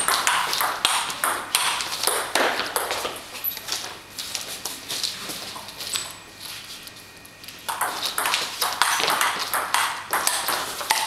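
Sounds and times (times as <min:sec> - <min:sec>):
ping pong ball clicking off paddles: 0:00.0 - 0:03.2, 0:07.7 - 0:11.0.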